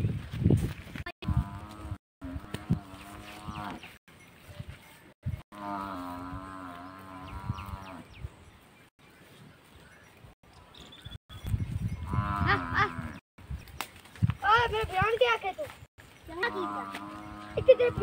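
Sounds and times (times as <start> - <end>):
cattle mooing: 16.4 - 18.0.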